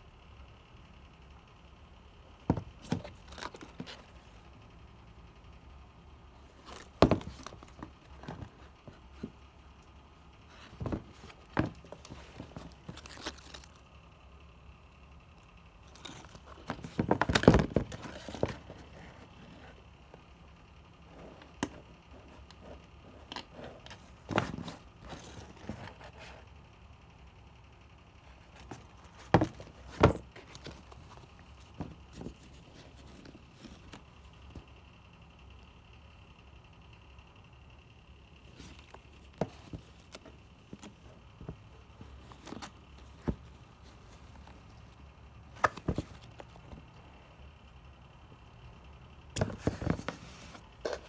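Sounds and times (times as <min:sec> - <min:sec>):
knocks of handled shoebox: 0:02.4 - 0:03.2, 0:06.7 - 0:09.3, 0:10.7 - 0:13.1, 0:16.0 - 0:18.7, 0:28.6 - 0:30.8
sneaker handling noise: 0:02.4 - 0:03.9, 0:06.6 - 0:09.4, 0:10.5 - 0:13.7, 0:15.9 - 0:19.4, 0:21.2 - 0:26.2, 0:28.6 - 0:34.7, 0:45.5 - 0:46.9, 0:49.4 - 0:51.0
soft rustles: 0:06.3 - 0:14.0, 0:15.8 - 0:26.6, 0:28.2 - 0:34.8, 0:38.4 - 0:47.0, 0:49.4 - 0:51.0.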